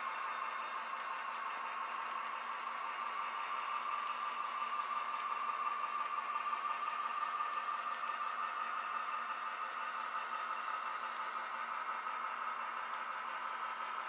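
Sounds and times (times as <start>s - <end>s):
model train whirring hum: 0.0s - 14.0s
wheels clicking on track: 0.0s - 14.0s.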